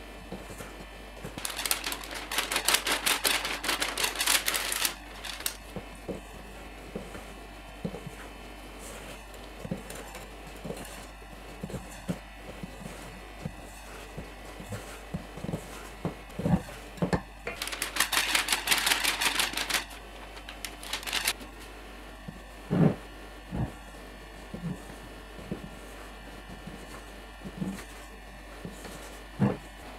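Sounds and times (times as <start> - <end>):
flour rattling into bowl: 1.4 - 5.6, 17.5 - 21.4.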